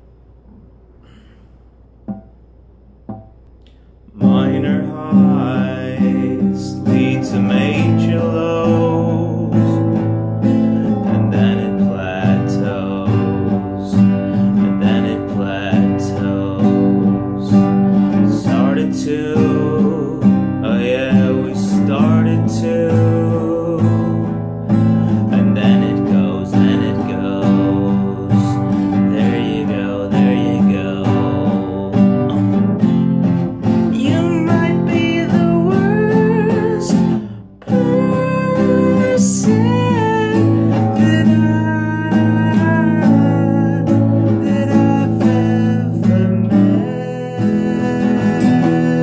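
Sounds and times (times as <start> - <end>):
classical guitar strummed: 2.0 - 2.4, 3.1 - 49.0
man singing: 4.1 - 33.0, 33.6 - 49.0.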